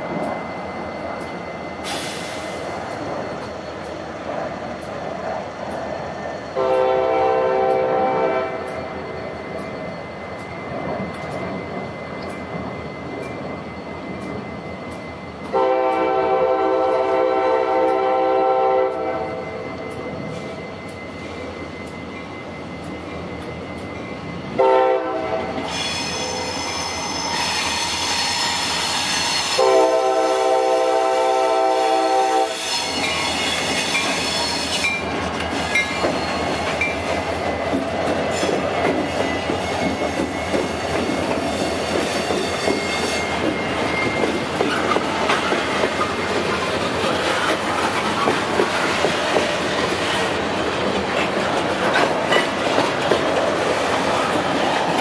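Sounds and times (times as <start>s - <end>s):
train rolling past rumble: 0.0s - 55.0s
locomotive air horn: 6.6s - 8.7s, 15.5s - 19.4s, 24.6s - 33.0s
wheel squeal: 25.6s - 29.6s, 32.6s - 37.1s, 38.3s - 45.4s
wheels clacking over rail joints: 32.8s - 55.0s.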